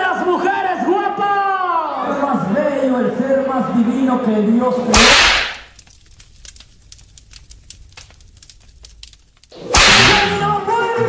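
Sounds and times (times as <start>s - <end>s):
faint scattered crackling: 4.9s - 10.4s
whoosh and hit sound effect: 9.8s - 10.4s.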